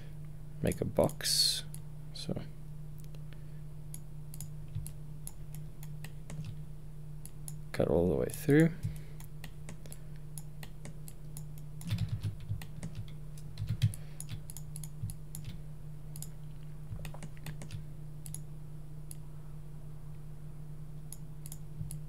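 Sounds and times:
low electrical hum: 0.0s - 22.0s
computer keyboard keystrokes: 4.3s - 6.6s, 8.8s - 15.6s, 16.9s - 18.4s.

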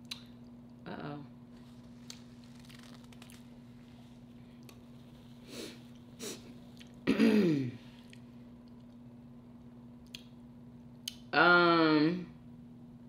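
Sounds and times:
faint steady hum: 0.0s - 13.0s
paper napkin rustling: 1.6s - 5.4s.

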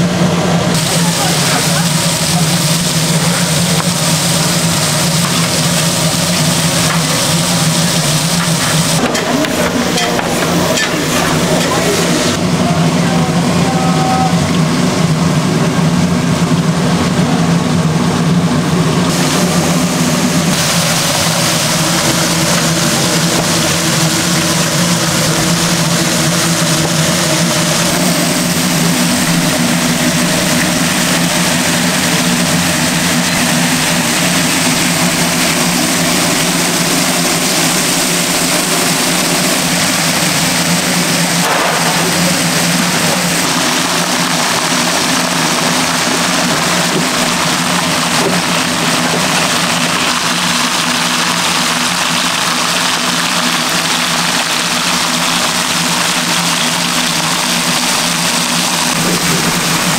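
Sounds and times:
low machine hum: 0.0s - 59.9s
people's voices: 0.4s - 4.1s, 6.7s - 14.6s.

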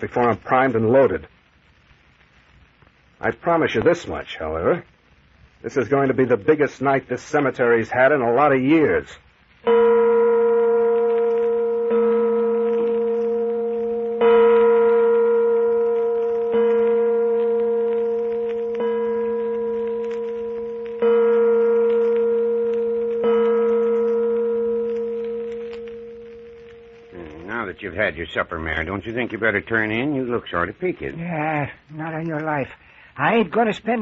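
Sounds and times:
bell tolling: 9.7s - 27.8s.

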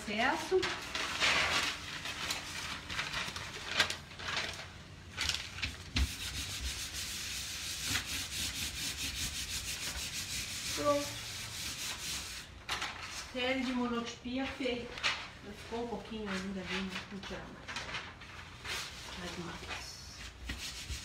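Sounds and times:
hand rubbing on paper: 6.0s - 12.5s, 18.7s - 21.0s.

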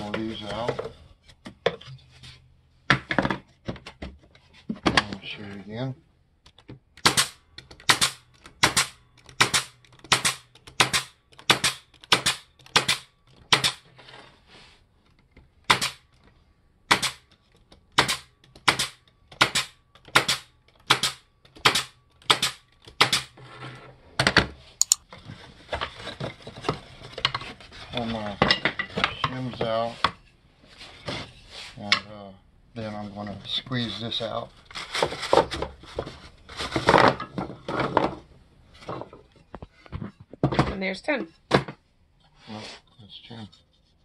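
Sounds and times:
wooden frames rustling and scraping: 0.0s - 5.8s, 13.8s - 15.6s, 23.4s - 31.9s, 34.6s - 40.7s
pneumatic stapler firing: 7.0s - 13.8s, 15.7s - 16.0s, 16.9s - 17.2s, 18.0s - 23.3s.

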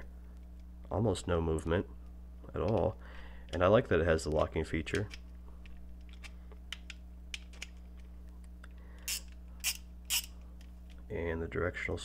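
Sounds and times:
ratchet clicking: 9.1s - 10.3s.

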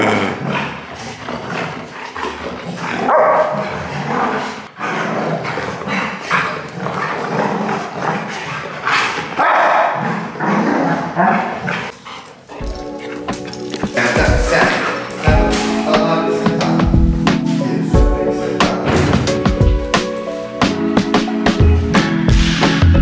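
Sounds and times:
dogs barking and yipping: 3.0s - 4.8s, 8.2s - 10.4s, 11.0s - 15.9s.

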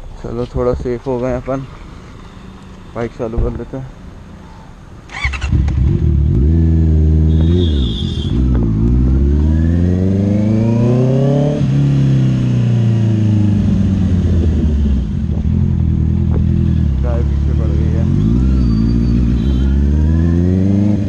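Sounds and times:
motorcycle engine starting and revving: 5.1s - 21.0s.

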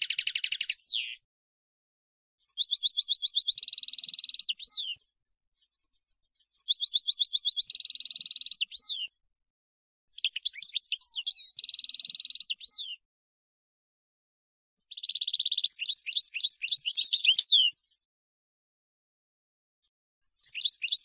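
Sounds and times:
goldfinch singing: 0.0s - 1.2s, 2.5s - 5.0s, 6.6s - 9.1s, 10.2s - 13.0s, 14.8s - 17.8s, 20.4s - 21.0s.

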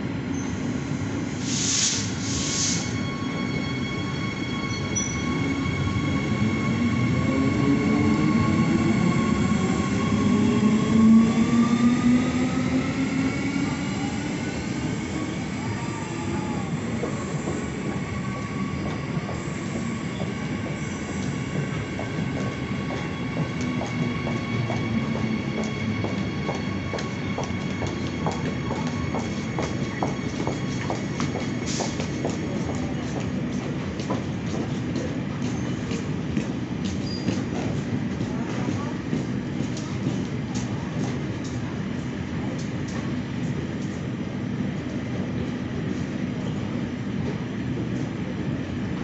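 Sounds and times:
short hiss: 1.4s - 2.9s.

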